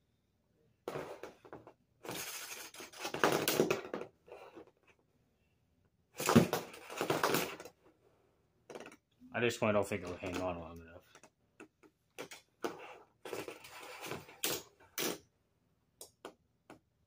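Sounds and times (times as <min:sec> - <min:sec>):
spinning tops on hard floor: 0:00.9 - 0:04.4, 0:12.2 - 0:15.2.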